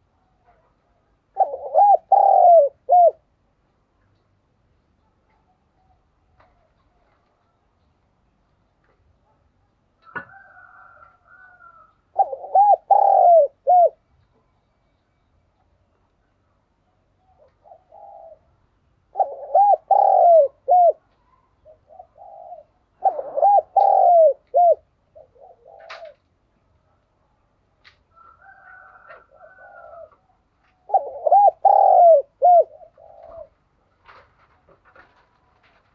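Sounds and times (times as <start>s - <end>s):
dove cooing: 1.3s - 3.3s, 10.1s - 14.0s, 17.0s - 26.4s, 28.1s - 35.8s.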